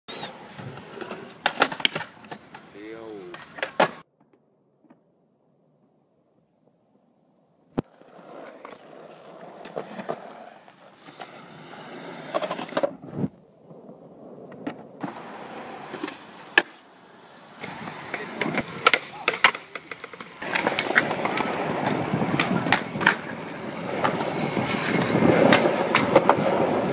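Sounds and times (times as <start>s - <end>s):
skateboard wheels rolling on concrete: 0.1s - 26.9s
skateboard clacking on ground: 0.7s - 5.1s, 17.6s - 26.9s
skateboard sliding on ledge: 7.8s - 26.9s.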